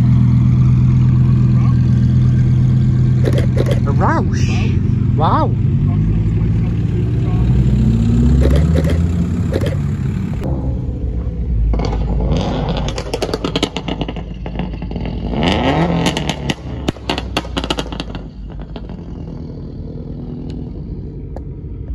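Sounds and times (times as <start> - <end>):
engine revving: 0.0 - 21.9
sports car engines running: 0.0 - 21.9
sharp clicks: 3.2 - 3.9, 8.4 - 9.9.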